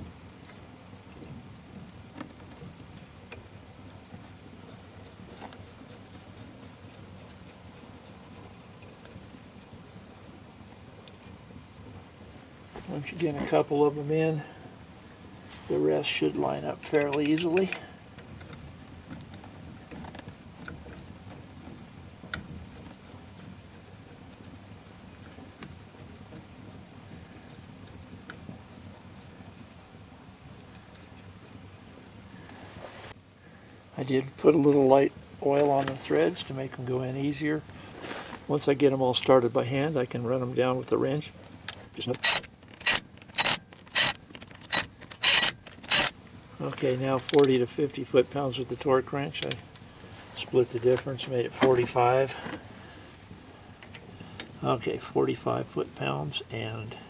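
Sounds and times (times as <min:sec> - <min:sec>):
bolts clicking and scraping: 0:15.6 - 0:32.6, 0:41.6 - 0:47.7, 0:48.6 - 0:52.7.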